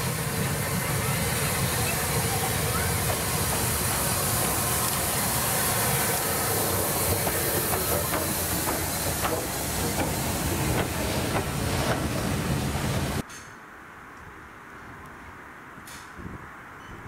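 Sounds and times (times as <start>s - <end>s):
steam hissing: 0.0s - 13.2s
wheels clicking over rail joints: 6.4s - 12.3s.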